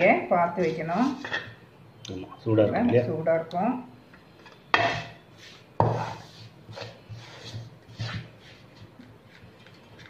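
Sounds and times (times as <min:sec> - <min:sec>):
metal spatula scraping metal bowl: 0:04.7 - 0:08.4.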